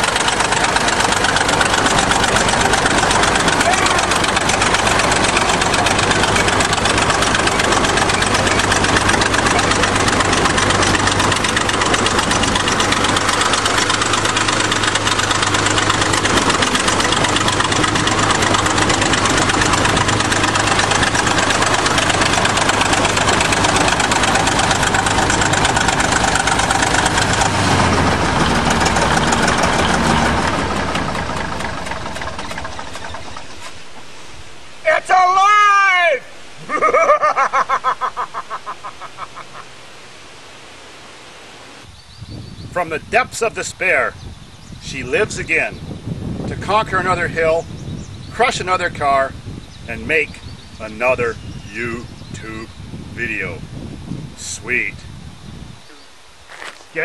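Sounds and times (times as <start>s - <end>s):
bulldozer diesel engine running: 0.0s - 34.1s.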